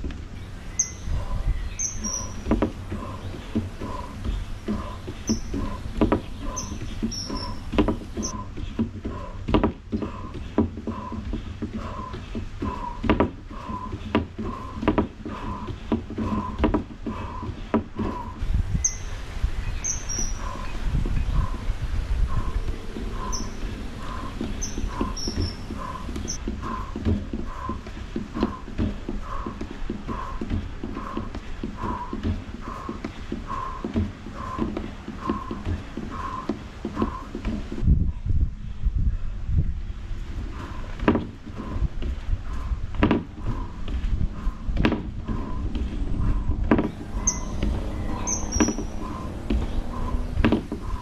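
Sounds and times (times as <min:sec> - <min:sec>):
wind rumble on microphone: 0:00.0 - 0:51.0
high bird chirps: 0:00.4 - 0:08.5, 0:18.7 - 0:21.6, 0:22.5 - 0:26.4, 0:46.9 - 0:50.2
feet tapping on a mat: 0:01.9 - 0:18.5, 0:22.3 - 0:37.9, 0:40.4 - 0:51.0.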